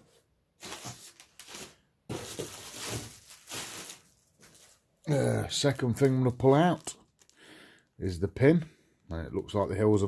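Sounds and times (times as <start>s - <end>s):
packaging crinkling: 0.6s - 4.9s, 5.9s - 7.8s.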